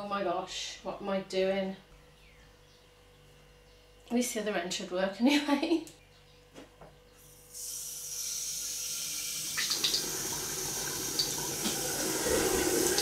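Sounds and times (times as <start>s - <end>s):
water pouring into steel sink: 7.7s - 13.0s.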